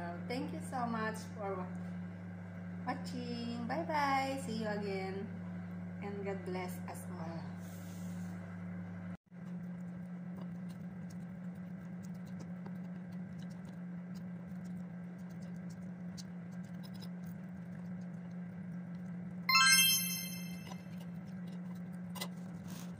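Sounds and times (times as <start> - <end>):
loud bright chime: 19.5 - 20.7.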